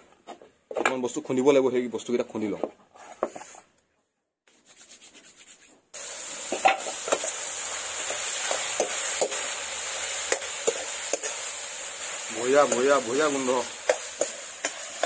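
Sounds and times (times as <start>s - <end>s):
food sizzling in pan: 5.9s - 15.0s.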